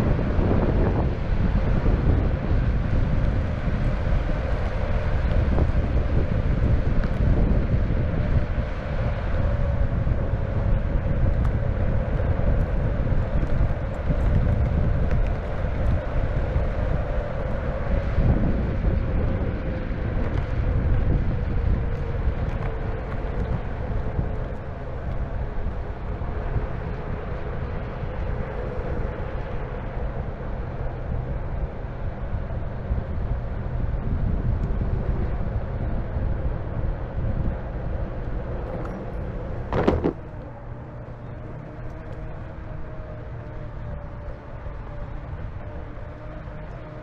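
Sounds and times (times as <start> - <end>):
skateboard wheel rumble: 0.0 - 47.0
wind on microphone: 0.0 - 47.0
skateboard knock: 39.7 - 40.2.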